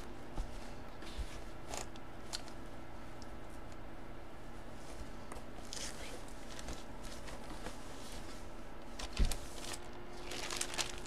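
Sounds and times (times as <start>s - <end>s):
plastic bag crinkling: 9.0s - 11.0s.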